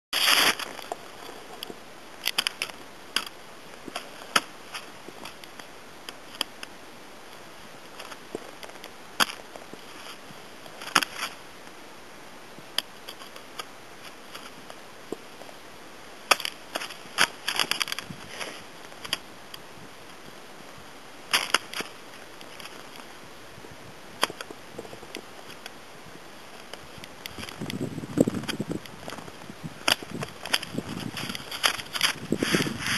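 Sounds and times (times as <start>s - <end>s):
ski boots clicking into bindings: 0.2s - 6.7s, 7.9s - 11.4s, 16.3s - 19.6s, 21.3s - 23.1s, 26.6s - 32.9s.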